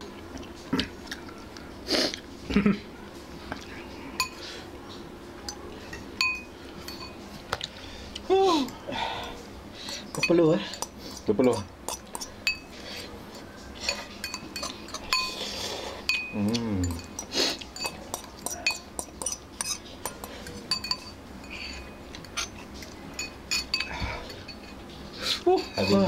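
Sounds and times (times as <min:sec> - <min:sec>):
cutlery clinking on ceramic bowls: 0:04.2 - 0:04.4, 0:05.4 - 0:07.2, 0:08.6 - 0:26.0.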